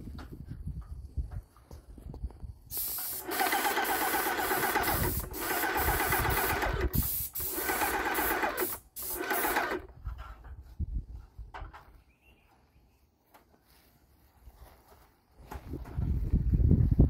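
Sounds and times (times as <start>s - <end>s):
loud spray hiss: 2.7s - 9.8s
paint sprayer pump chattering: 2.7s - 9.9s.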